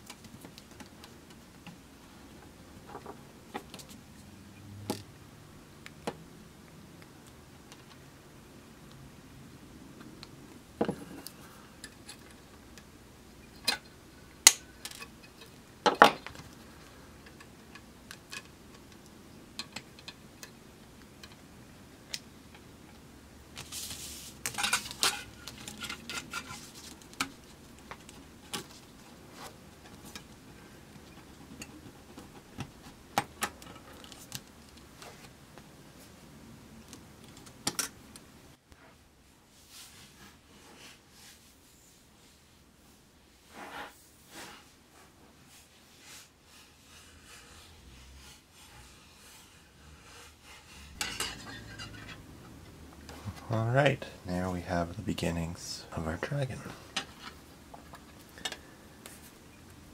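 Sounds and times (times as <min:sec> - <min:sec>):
metal scraping: 0:46.1 - 0:52.3.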